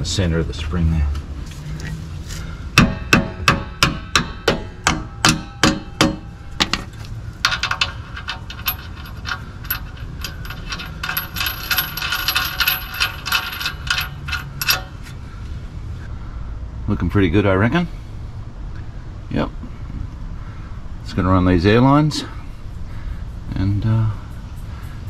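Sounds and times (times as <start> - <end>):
hammer striking metal bolt: 2.8 - 15.0
metallic clicks and scraping: 5.3 - 15.2.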